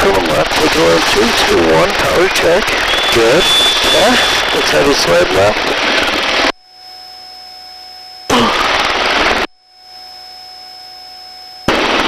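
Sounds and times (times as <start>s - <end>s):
intercom hiss: 0.0s - 5.8s
loud helicopter noise: 0.0s - 6.5s
faint steady tones: 0.1s - 8.3s.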